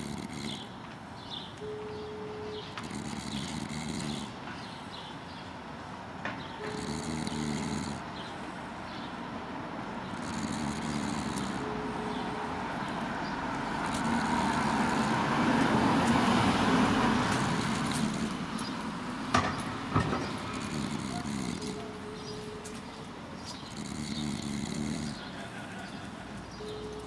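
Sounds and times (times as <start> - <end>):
vehicle passing: 0.0 - 27.0
sharp knocks: 19.3 - 20.5.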